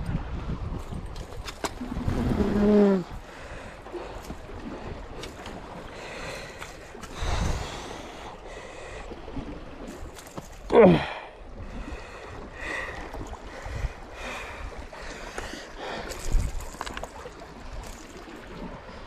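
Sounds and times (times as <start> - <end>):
wind buffeting microphone: 0.0 - 8.3, 11.4 - 19.0
sea washing against rocks: 0.0 - 19.0
man's wordless vocal sound: 10.7 - 11.3.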